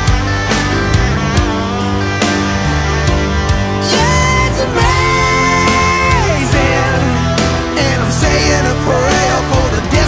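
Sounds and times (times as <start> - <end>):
electric guitar: 0.0 - 10.0
rock music: 0.0 - 10.0
steady drum beat: 0.0 - 10.0.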